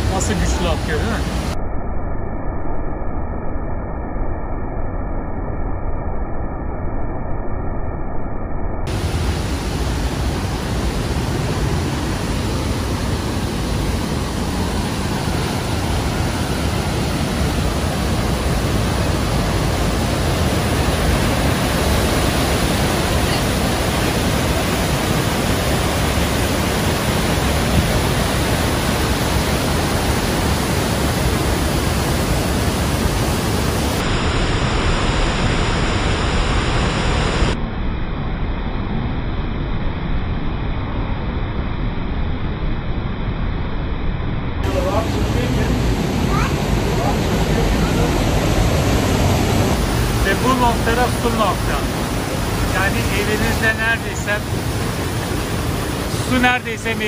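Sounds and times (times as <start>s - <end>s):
waterfall rushing: 0.0s - 1.6s, 8.9s - 37.6s, 44.6s - 57.0s.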